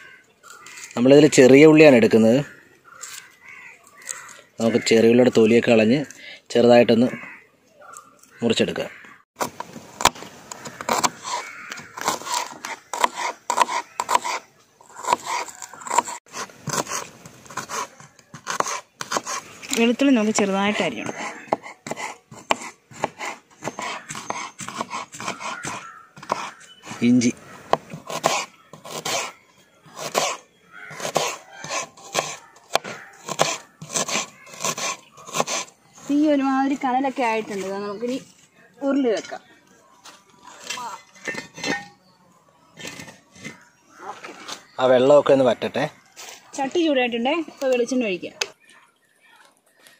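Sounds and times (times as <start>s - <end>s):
knife chopping ginger on board: 21.0s - 26.6s.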